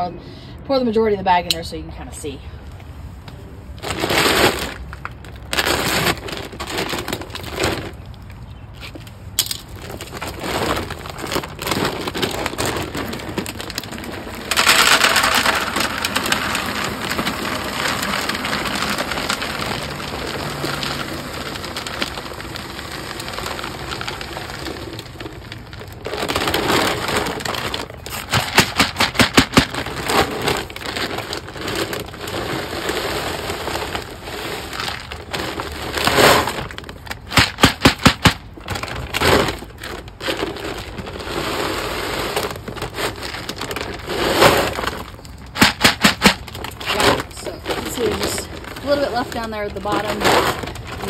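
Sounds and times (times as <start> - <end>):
dry kibble pouring into plastic container: 9.8 - 38.2, 38.8 - 51.0.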